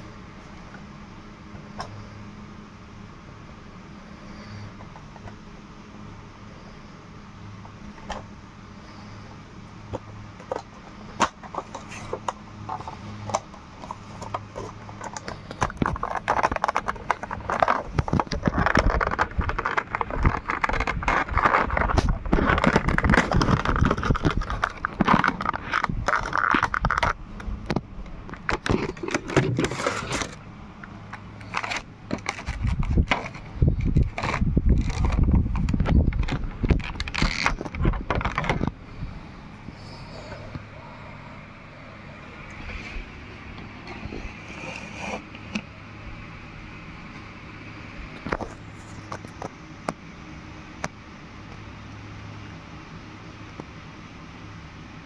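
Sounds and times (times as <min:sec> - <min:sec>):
plastic packaging crinkling: 0:11.2 - 0:27.2, 0:28.3 - 0:30.4, 0:31.1 - 0:38.8.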